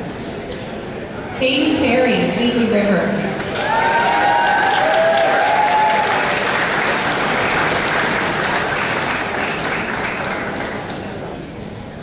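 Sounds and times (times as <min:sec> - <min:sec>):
audience applauding: 0:03.4 - 0:11.2.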